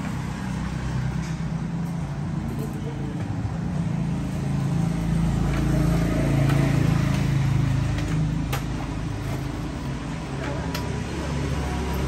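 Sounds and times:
vehicle engine passing: 0:03.8 - 0:10.3.

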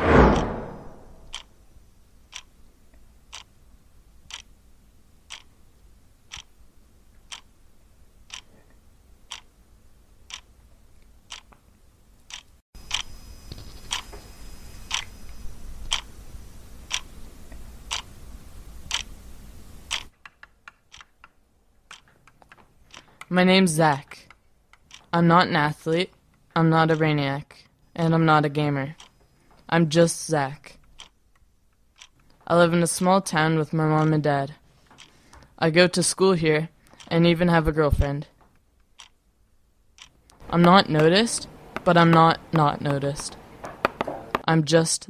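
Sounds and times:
clock ticking: 0:00.3 - 0:01.5, 0:02.3 - 0:02.5, 0:03.3 - 0:03.5, 0:04.2 - 0:04.5, 0:05.3 - 0:05.5, 0:06.3 - 0:06.5, 0:07.2 - 0:07.5, 0:08.3 - 0:08.5, 0:09.3 - 0:09.5, 0:10.3 - 0:10.5, 0:11.3 - 0:11.6, 0:12.3 - 0:13.0, 0:16.9 - 0:17.1, 0:18.9 - 0:19.1, 0:19.9 - 0:23.3, 0:23.9 - 0:25.9, 0:26.7 - 0:27.2, 0:30.8 - 0:34.3, 0:38.8 - 0:39.2, 0:40.0 - 0:43.4
chalk tapping on blackboard: 0:42.8 - 0:44.5.

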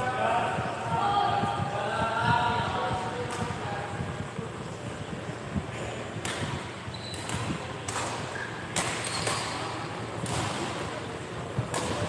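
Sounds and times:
racket hitting shuttlecock: 0:06.2 - 0:12.0
shoe squeaks: 0:06.9 - 0:07.3, 0:08.3 - 0:09.6.

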